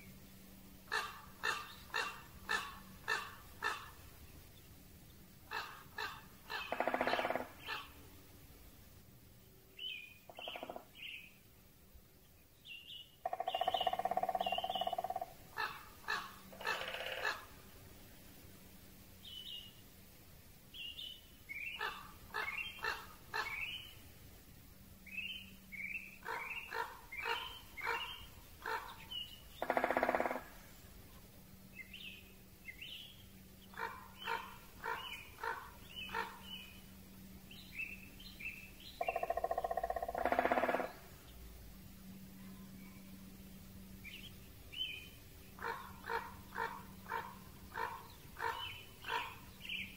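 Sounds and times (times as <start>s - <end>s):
harsh low bird calls: 0.9s - 4.1s, 5.4s - 8.0s, 9.8s - 11.3s, 12.8s - 17.5s, 20.8s - 24.0s, 25.1s - 30.8s, 31.8s - 36.9s, 37.5s - 41.1s, 44.0s - 49.9s
woodpecker drumming: 5.5s - 7.9s, 10.3s - 11.0s, 13.2s - 17.4s, 29.6s - 30.6s, 39.0s - 41.0s
high bird chirps: 13.3s - 15.0s.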